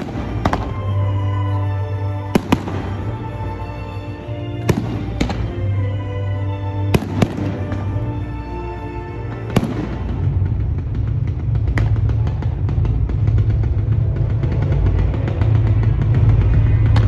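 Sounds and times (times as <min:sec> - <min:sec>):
fireworks bursting with sharp bangs: 0:00.0 - 0:17.0
music with strong bass: 0:09.4 - 0:17.0.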